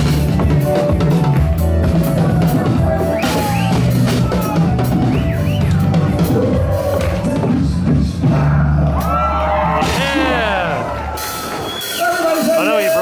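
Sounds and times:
drum-driven music: 0:00.0 - 0:13.0.

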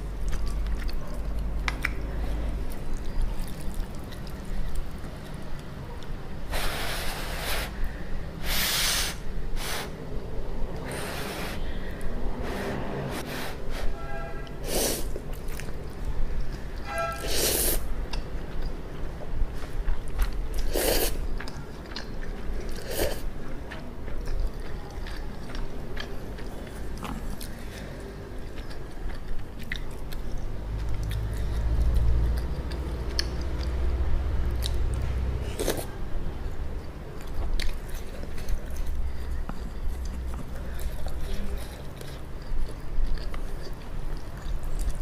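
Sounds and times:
wet chewing: 0:00.0 - 0:06.1, 0:15.1 - 0:16.9, 0:17.6 - 0:35.9, 0:36.8 - 0:45.0.

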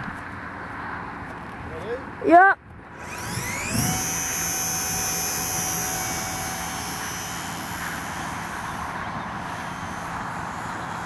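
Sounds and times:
wind noise on microphone: 0:02.6 - 0:11.0
model plane motor whining: 0:02.9 - 0:11.0.

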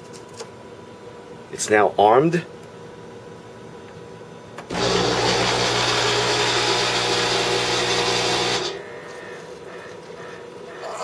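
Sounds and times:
coffee maker pump humming: 0:04.7 - 0:11.0.

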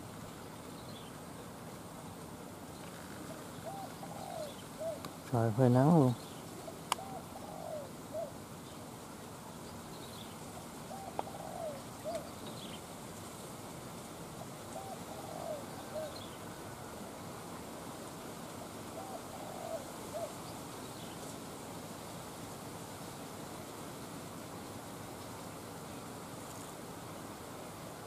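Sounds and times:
steady background hiss: 0:00.0 - 0:28.0
dove cooing: 0:02.8 - 0:05.2, 0:05.8 - 0:08.5, 0:10.8 - 0:12.4, 0:14.6 - 0:17.2, 0:18.8 - 0:20.6.

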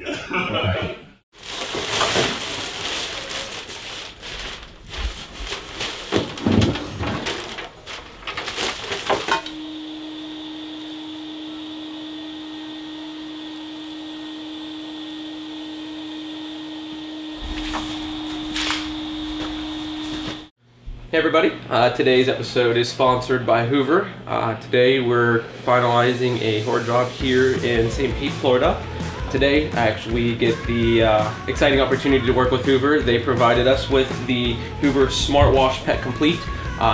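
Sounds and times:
clatter of trash being handled: 0:01.5 - 0:09.5
vacuum cleaner running: 0:08.5 - 0:20.5.

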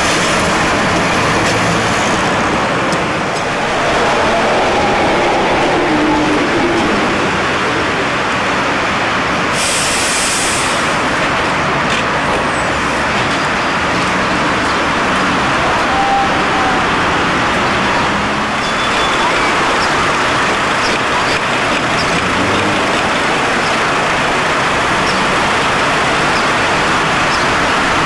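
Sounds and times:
street traffic: 0:00.0 - 0:28.0.

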